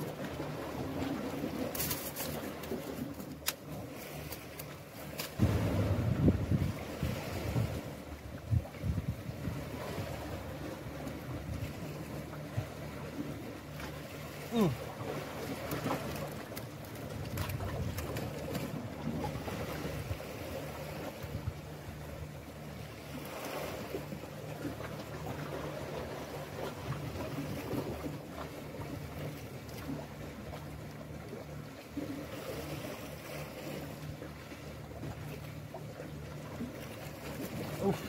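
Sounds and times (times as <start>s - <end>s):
steady low hum: 0.0s - 38.0s
waves washing against rocks: 3.8s - 8.1s
wind on microphone: 5.4s - 10.4s.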